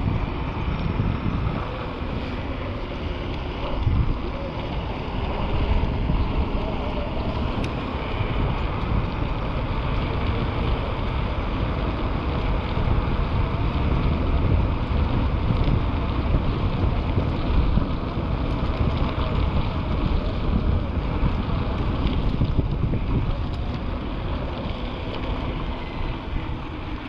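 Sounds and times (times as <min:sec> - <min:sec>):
low rumble: 0:00.0 - 0:27.0
wind rushing over microphone: 0:00.0 - 0:27.0.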